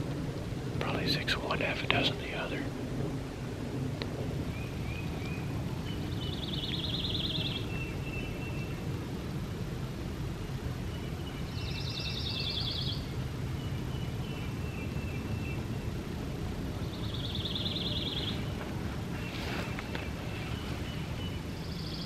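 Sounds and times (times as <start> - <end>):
steady low rumble: 0.0 - 22.0
songbird trilling: 4.5 - 8.8, 10.9 - 15.9, 16.8 - 18.6, 19.2 - 22.0.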